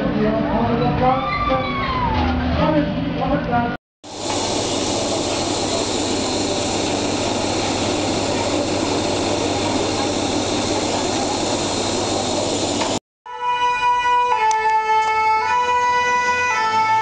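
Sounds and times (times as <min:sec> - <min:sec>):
machinery rushing noise: 0:04.0 - 0:13.0.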